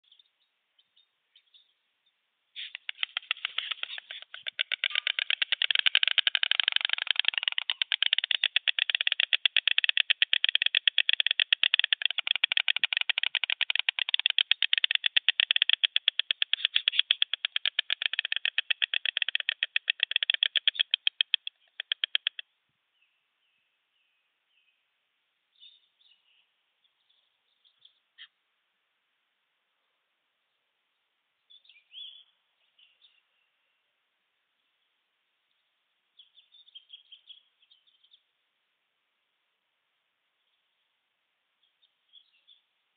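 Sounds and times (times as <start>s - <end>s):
faint bird chirps: 0.0s - 28.4s, 29.8s - 38.4s, 41.6s - 42.8s
storks bill-clattering: 2.6s - 22.4s.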